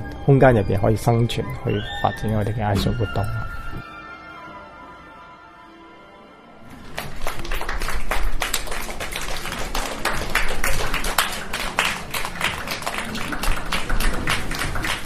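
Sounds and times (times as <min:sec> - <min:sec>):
rapid sharp claps and taps: 0:06.9 - 0:15.0.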